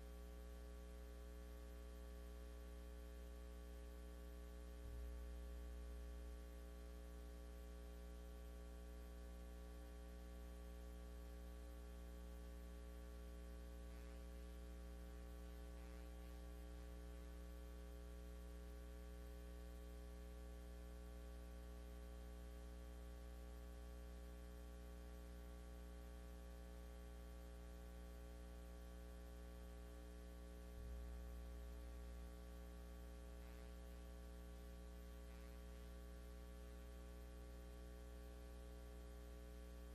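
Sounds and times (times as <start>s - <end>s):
faint electrical mains hum: 0.0s - 39.9s.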